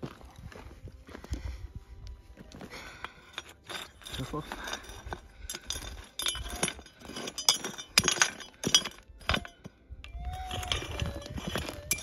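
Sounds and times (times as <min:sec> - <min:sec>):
tool knocking against stones: 0:03.4 - 0:09.8, 0:10.4 - 0:12.0.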